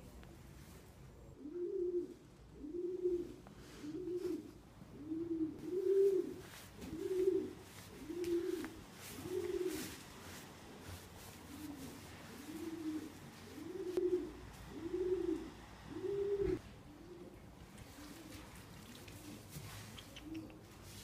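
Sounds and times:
pigeon cooing: 0:01.4 - 0:10.1, 0:10.8 - 0:21.0.

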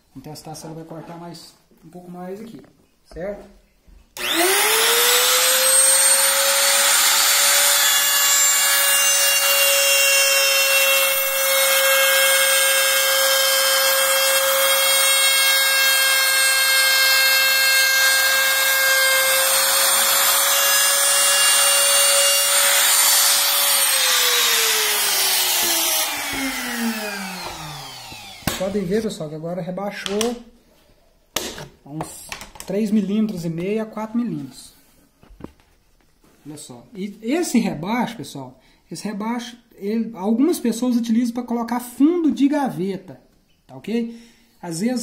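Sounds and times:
trim router whining: 0:04.2 - 0:28.8
motor spinning down: 0:22.8 - 0:28.5.

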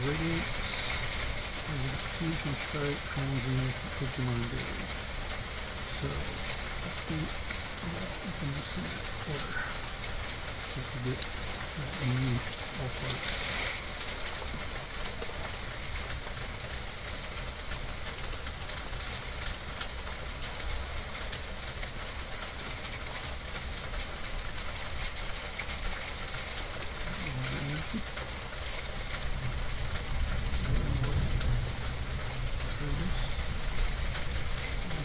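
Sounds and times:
rain falling: 0:00.0 - 0:35.0
low rumble: 0:29.2 - 0:35.0.

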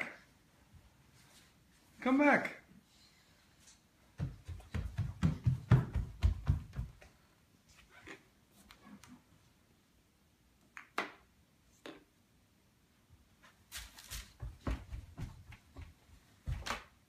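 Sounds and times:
footsteps on floor: 0:04.1 - 0:07.2, 0:13.4 - 0:16.9
soft thumps and knocks: 0:04.2 - 0:07.1.

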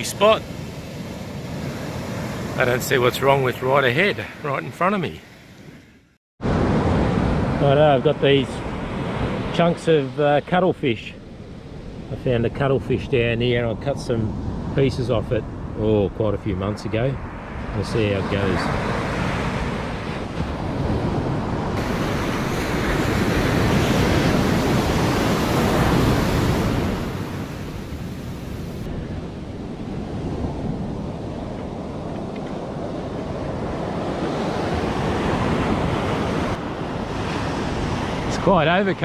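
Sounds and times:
ocean surf breaking on beach: 0:00.0 - 0:12.1, 0:17.2 - 0:39.0
wind buffeting microphone: 0:11.2 - 0:39.0.

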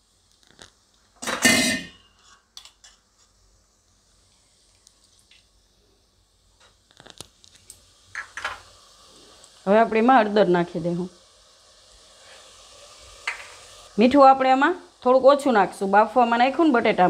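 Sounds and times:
faint steady hiss: 0:00.0 - 0:17.0
paste hitting hot oil: 0:08.1 - 0:08.7, 0:13.2 - 0:13.7.

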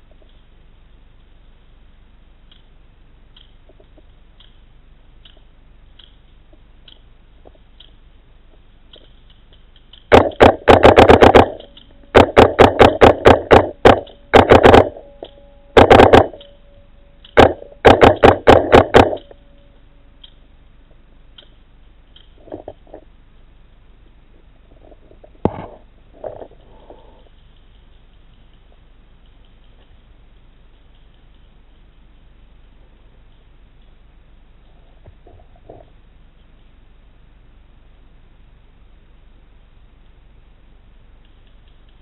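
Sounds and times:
paintball marker firing: 0:10.1 - 0:16.5, 0:17.3 - 0:19.4.

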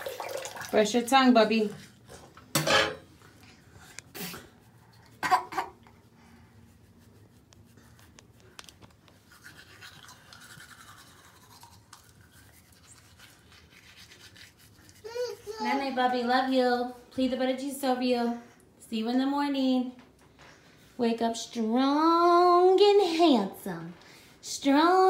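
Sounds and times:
toothbrush scrubbing teeth: 0:09.0 - 0:15.8.

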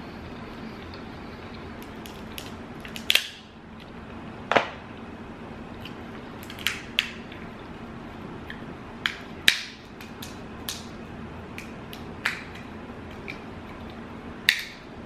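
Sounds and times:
crab shell cracking: 0:01.8 - 0:03.4, 0:05.8 - 0:07.2, 0:09.0 - 0:11.0.

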